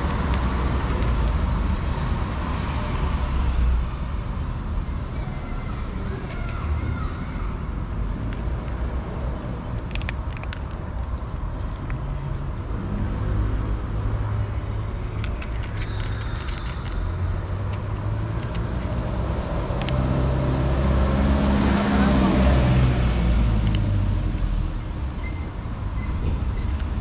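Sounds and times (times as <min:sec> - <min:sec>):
vehicle engine rumble: 0:00.0 - 0:27.0
kitten chewing dry food: 0:09.7 - 0:12.1.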